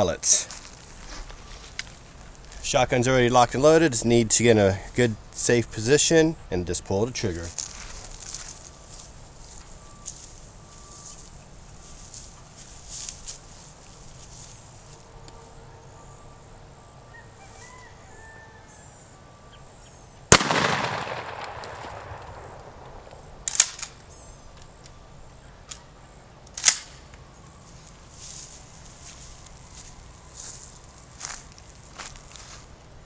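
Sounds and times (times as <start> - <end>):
shotgun blast echoing: 20.3 - 23.8.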